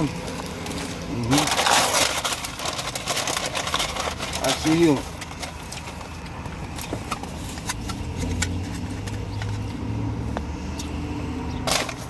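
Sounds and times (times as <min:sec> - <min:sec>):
paper tray rustling: 0:00.0 - 0:09.6
car engine hum: 0:00.0 - 0:12.0.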